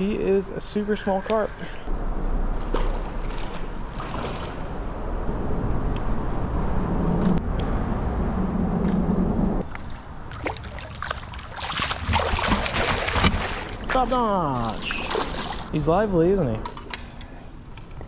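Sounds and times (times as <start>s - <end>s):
water washing: 9.6s - 15.7s.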